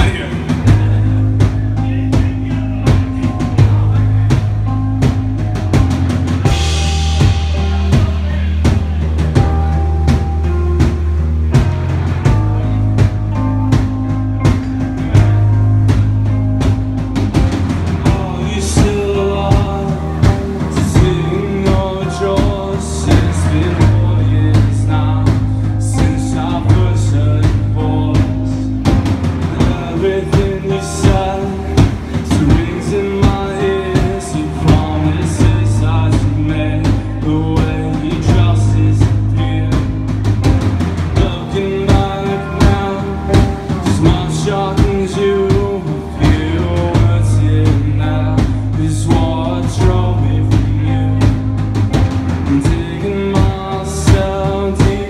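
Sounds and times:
drum kit beat: 0.0s - 55.0s
electric guitars: 0.0s - 55.0s
sustained bass notes: 0.0s - 55.0s.

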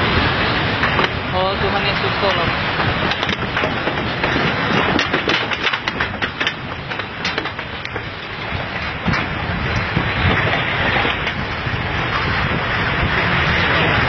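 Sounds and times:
debris cracks and knocks: 2.8s - 11.5s.

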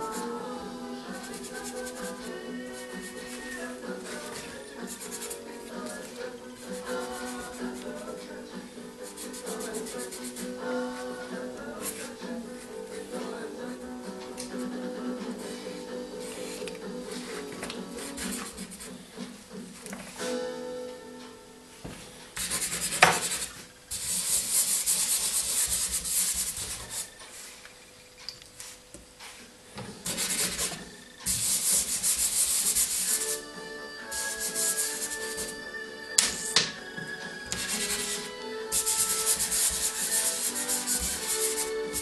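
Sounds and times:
faint background music: 0.0s - 42.0s
pastel rubbing on paper: 1.1s - 8.0s, 9.0s - 10.6s, 16.2s - 18.9s, 22.4s - 27.6s, 30.1s - 33.4s, 34.1s - 35.6s, 37.5s - 42.0s.

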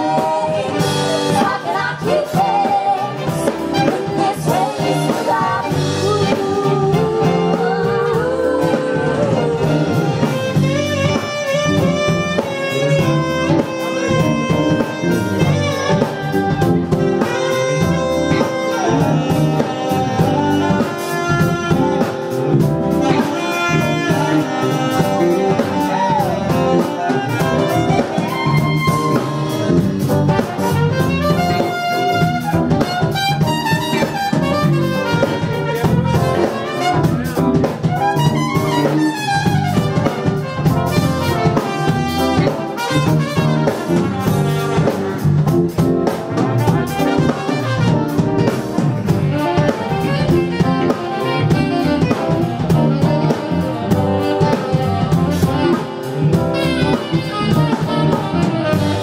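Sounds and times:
drum kit: 0.0s - 59.0s
horn section playing: 0.0s - 59.0s.

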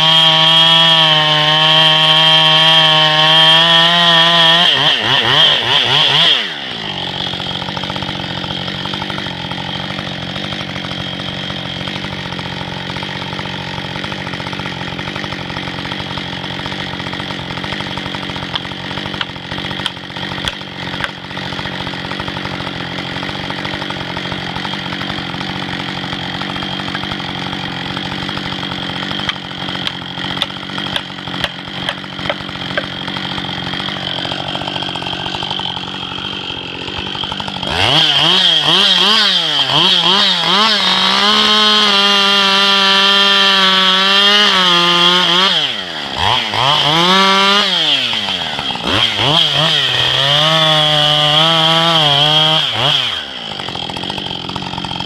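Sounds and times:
chainsaw idling: 0.0s - 55.0s.

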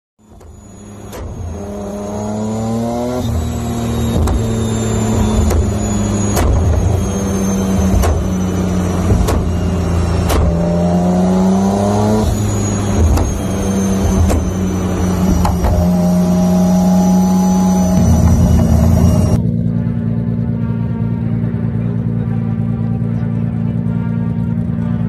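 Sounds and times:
car engine revving on a dyno: 0.3s - 19.4s.

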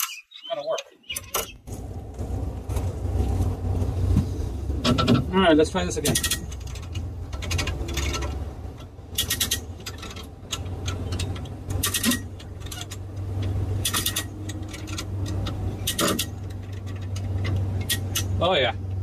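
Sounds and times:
ratchet clicking: 6.0s - 18.4s.

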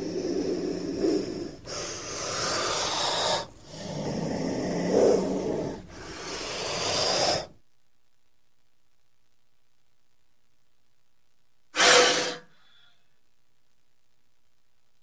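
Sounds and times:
snake hissing: 0.0s - 7.5s, 11.8s - 12.5s.

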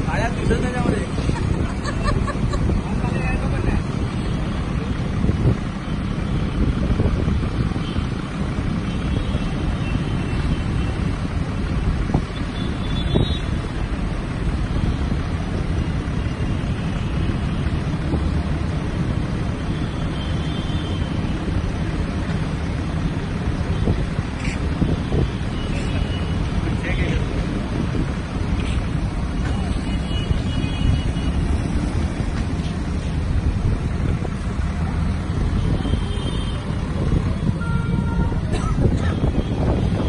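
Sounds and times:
wind buffeting microphone: 36.6s - 40.0s.

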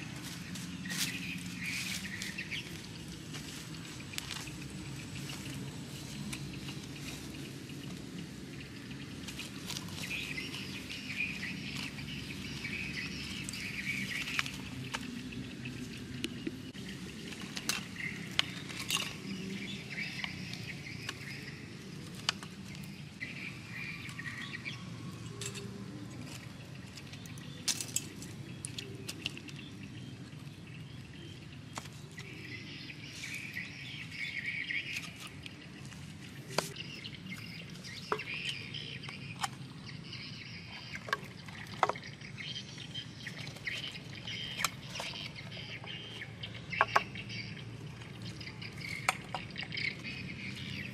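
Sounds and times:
birds chirping: 0.0s - 50.9s
low outdoor background: 0.0s - 50.9s.

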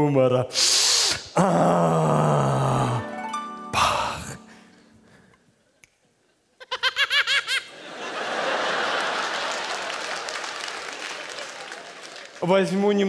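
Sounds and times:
high-pitched burst of laughter: 6.6s - 7.7s
studio audience laughing: 6.8s - 10.8s.

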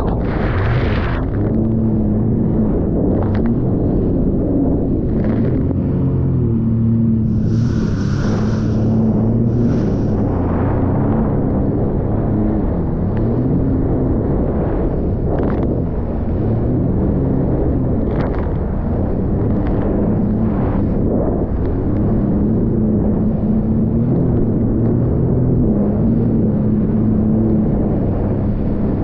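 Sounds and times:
watercraft engine humming: 5.8s - 11.0s.

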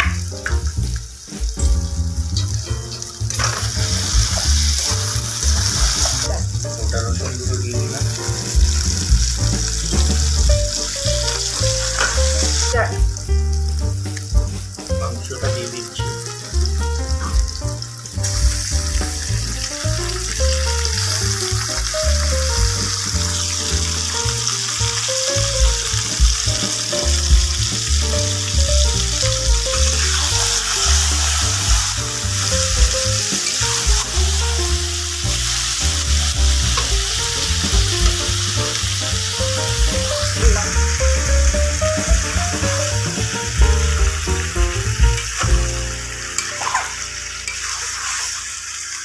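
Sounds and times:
background music with bass beat: 0.0s - 46.1s
meat sizzling in hot oil: 0.0s - 49.0s.

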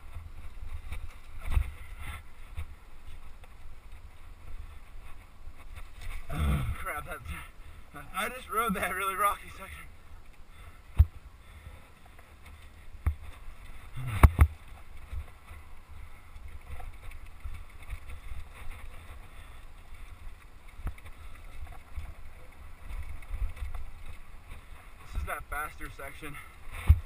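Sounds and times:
wind rumbling on microphone: 9.9s - 27.0s
bike knocking and rattling: 12.0s - 27.0s.

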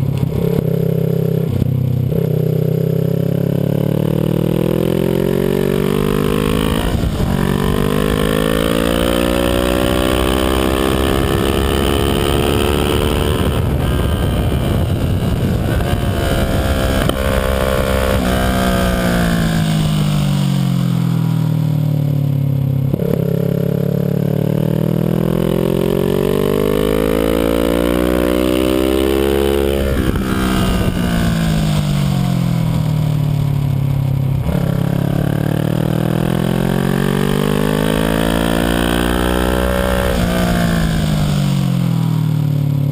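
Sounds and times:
motorcycle engine revving: 0.0s - 42.9s
wind rushing: 5.8s - 20.4s, 28.3s - 32.8s.

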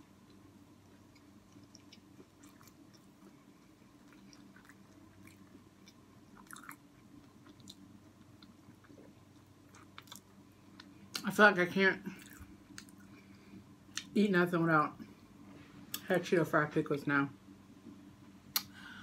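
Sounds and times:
faint steady hum: 0.0s - 19.0s
chewing mouth clicks and smacks: 0.9s - 11.2s.

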